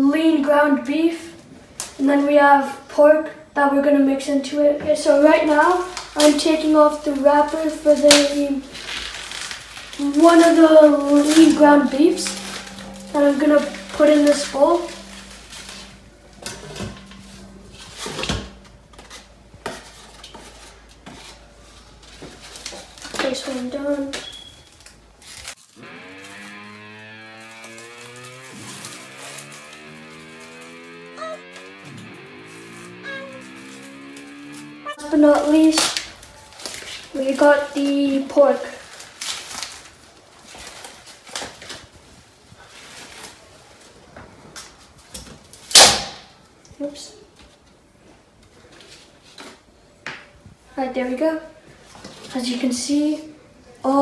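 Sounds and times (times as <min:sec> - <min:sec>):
plastic wrap rustling: 0:05.0 - 0:16.0, 0:18.4 - 0:26.5, 0:35.0 - 0:45.8.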